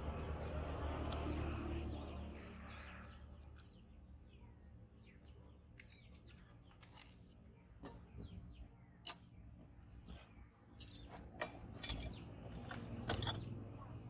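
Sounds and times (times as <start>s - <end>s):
birds chirping: 0.0s - 14.0s
tools clicking and knocking: 10.8s - 13.8s.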